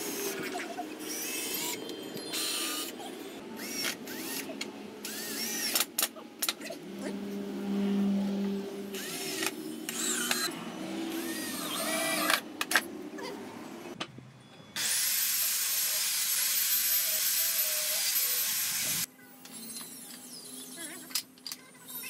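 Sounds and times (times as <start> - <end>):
cordless drill driving screws: 3.6 - 5.9, 9.0 - 10.5, 11.1 - 12.4
circular saw cutting a board: 7.0 - 12.4, 14.8 - 19.1.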